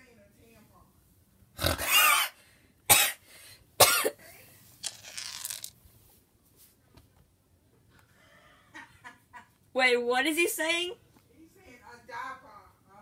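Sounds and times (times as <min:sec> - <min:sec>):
harsh cough-like animal calls: 0:01.6 - 0:03.2, 0:03.8 - 0:04.2.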